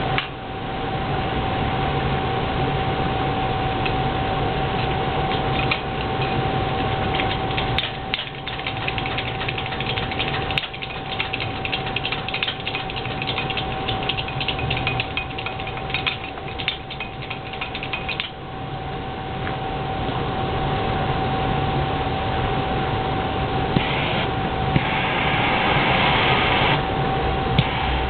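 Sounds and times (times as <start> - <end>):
gas burner rushing: 23.8 - 28.0.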